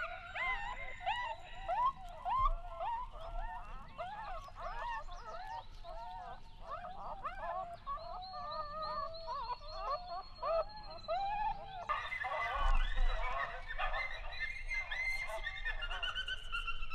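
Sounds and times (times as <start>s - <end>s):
chorus of animal calls: 0.0s - 16.9s.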